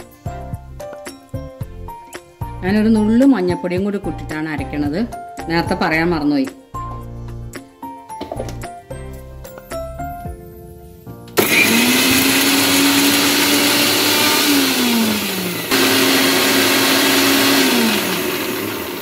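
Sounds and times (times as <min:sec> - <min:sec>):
mixer grinder motor grinding: 0:11.4 - 0:19.0.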